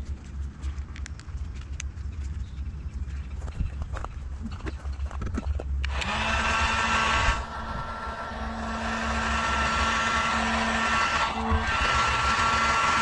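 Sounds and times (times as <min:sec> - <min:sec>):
heat gun running: 0:05.8 - 0:13.0.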